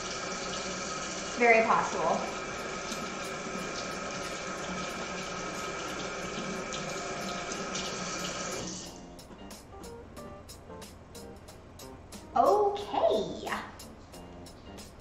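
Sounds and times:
faucet running into steel sink: 0.0 - 8.8.

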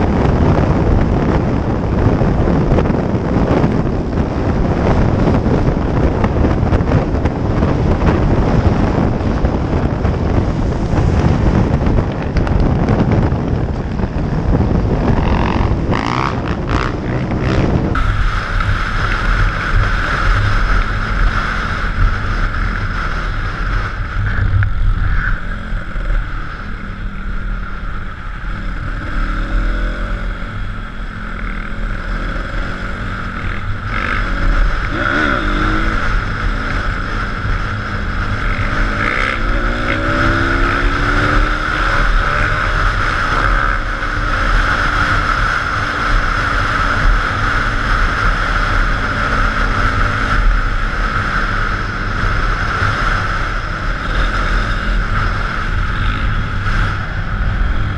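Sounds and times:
high engine whine: 0.0 - 57.9
wind buffeting microphone: 0.0 - 57.9
dirt-bike engines running: 4.4 - 57.9.

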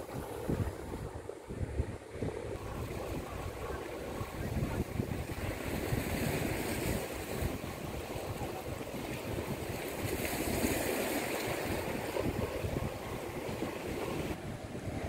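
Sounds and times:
wind buffeting microphone: 0.0 - 15.0
small waves breaking on rocks: 2.6 - 14.4.

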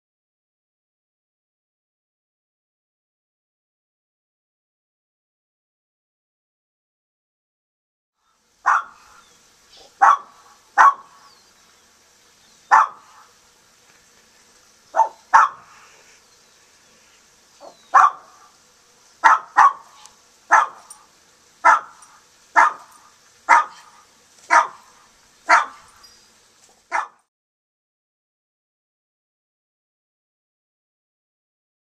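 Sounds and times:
dog barking: 8.6 - 9.2, 9.8 - 11.2, 12.7 - 13.3, 14.9 - 15.8, 17.6 - 18.5, 19.2 - 26.0, 26.9 - 27.3.

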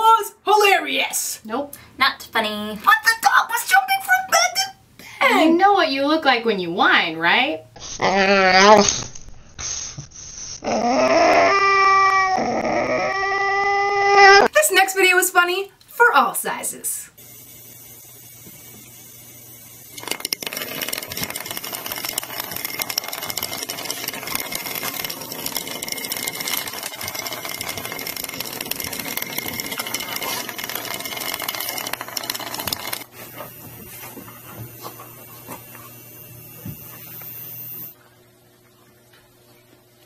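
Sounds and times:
toy motor whirring and clicking: 19.9 - 34.3, 34.9 - 38.0.

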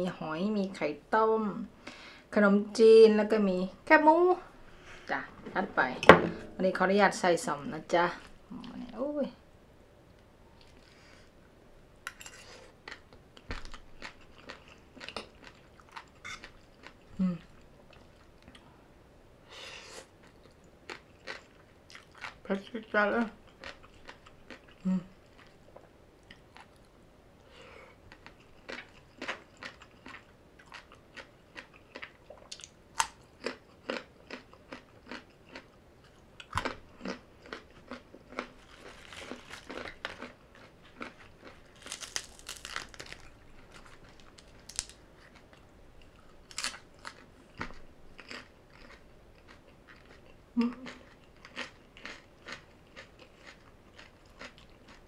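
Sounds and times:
crunchy chewing: 28.1 - 55.0.

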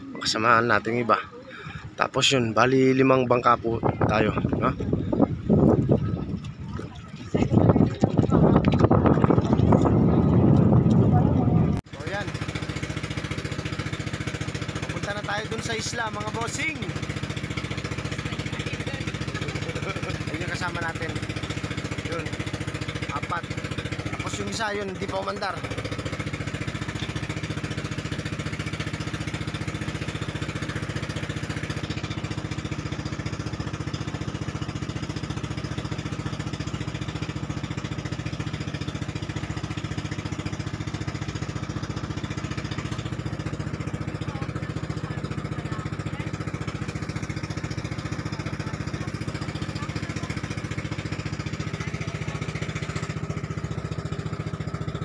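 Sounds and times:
motorboat engine droning: 0.0 - 55.0.

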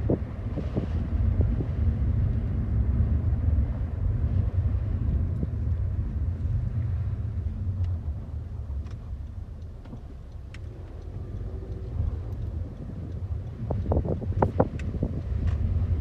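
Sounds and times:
car cabin rumble: 0.0 - 16.0
faint ticks: 6.3 - 16.0.

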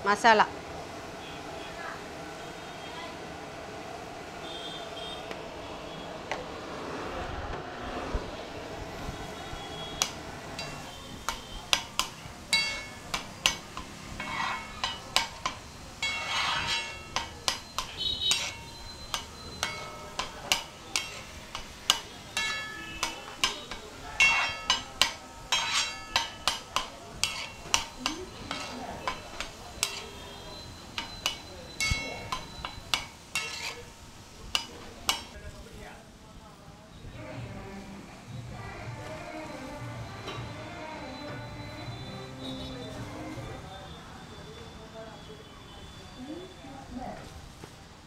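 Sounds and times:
food sizzling: 8.8 - 35.7
metal spatulas clanging on griddle: 9.9 - 35.5.

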